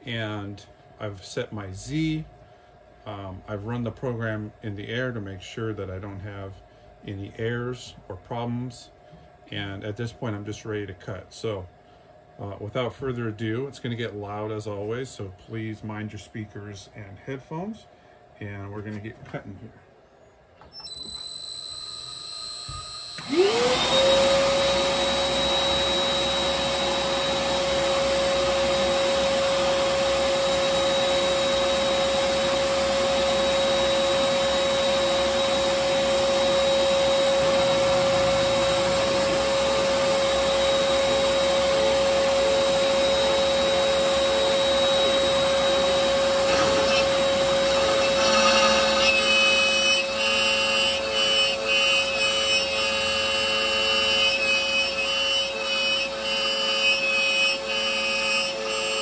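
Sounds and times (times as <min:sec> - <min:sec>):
router spindle high-pitched whine: 0:20.6 - 0:59.0
dust vacuum running: 0:20.8 - 0:59.0.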